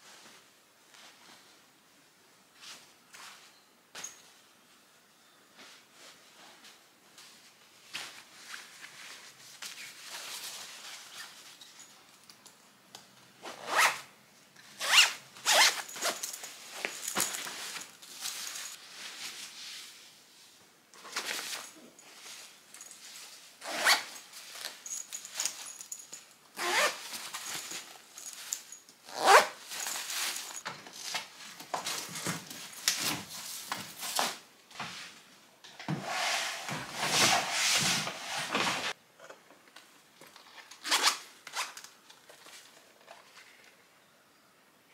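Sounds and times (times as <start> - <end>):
clothes rustling: 5.6 - 12.3, 14.7 - 20.1, 21.0 - 35.3.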